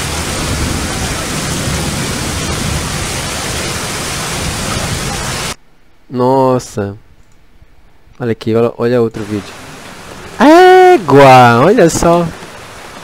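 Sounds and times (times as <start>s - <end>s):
heavy rain hissing: 0.0s - 5.6s, 9.2s - 13.0s.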